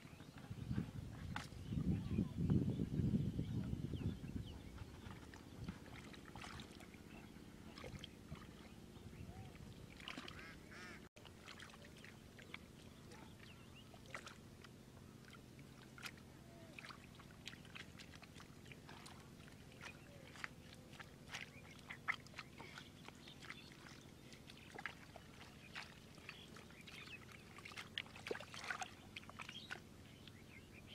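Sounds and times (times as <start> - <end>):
hands scooping mud and water: 5.0 - 8.8, 9.6 - 30.0.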